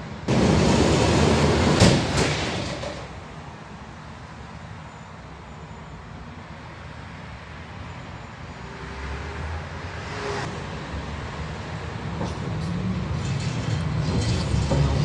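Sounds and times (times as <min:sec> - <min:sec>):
tram motors and running gear: 0:00.0 - 0:03.3, 0:11.7 - 0:15.0.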